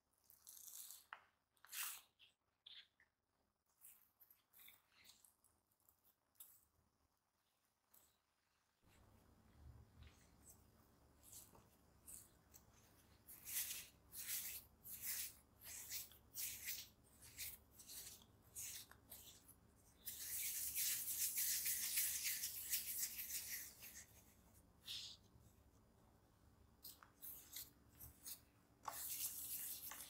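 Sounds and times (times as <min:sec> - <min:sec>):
hands rubbing dough on countertop: 0:08.4 - 0:30.0.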